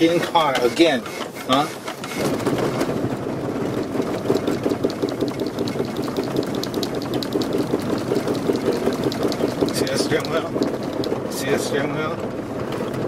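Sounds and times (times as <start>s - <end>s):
tyres rumbling on rough surface: 1.9s - 13.0s
faint rattles: 2.8s - 11.8s.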